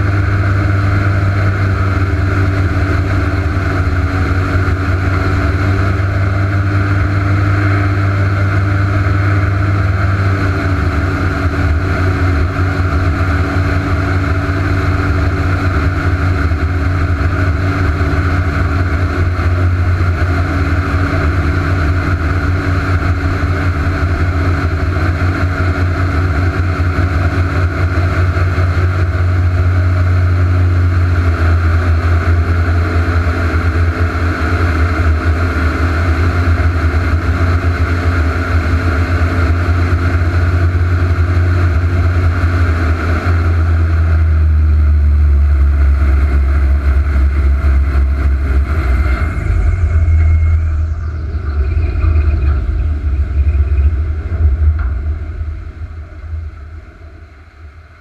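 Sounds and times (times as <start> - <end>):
airboat engine and propeller: 0.0 - 58.0.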